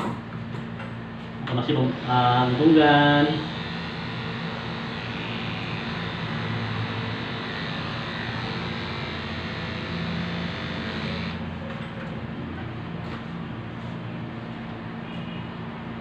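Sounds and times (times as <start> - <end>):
electric clippers buzzing: 1.7 - 11.5.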